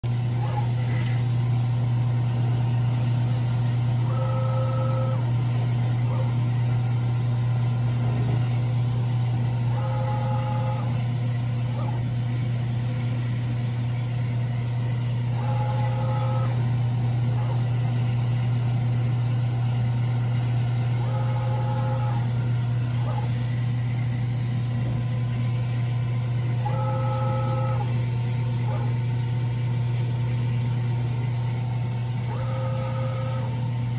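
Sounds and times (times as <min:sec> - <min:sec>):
low machine hum: 0:00.0 - 0:33.9.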